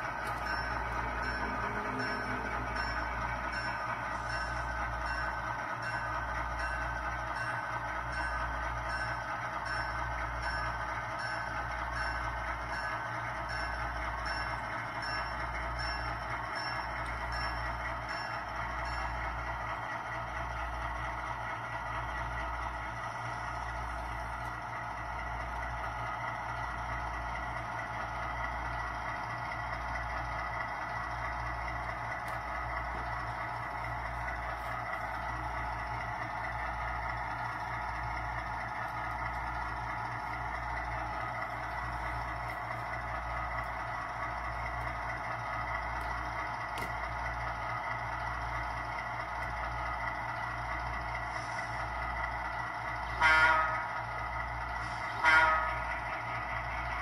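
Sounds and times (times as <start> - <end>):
diesel engine sound from small speaker: 28.2 - 57.0.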